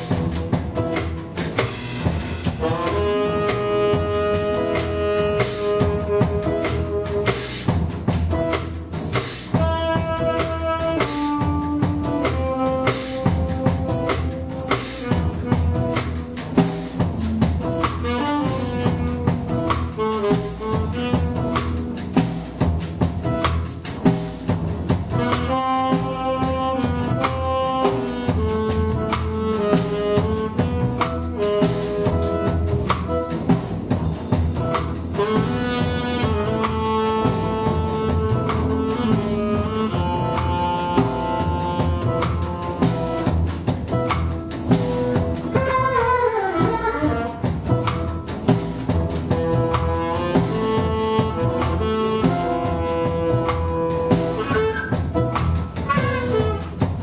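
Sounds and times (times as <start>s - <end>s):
held melody notes: 0.0s - 9.0s, 9.6s - 57.0s
drums and hand percussion: 0.0s - 57.0s.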